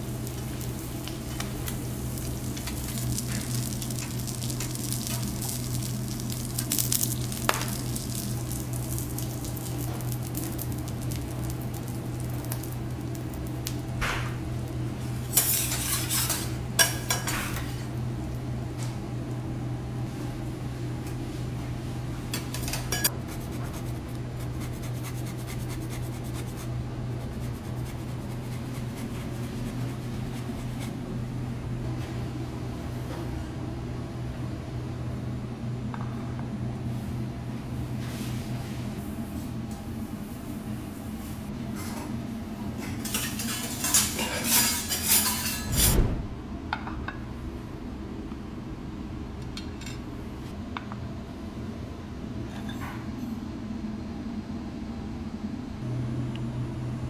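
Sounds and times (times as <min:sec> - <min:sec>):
light sizzling: 0:00.0 - 0:18.5, 0:22.3 - 0:31.0
steady low hum: 0:00.0 - 0:57.0.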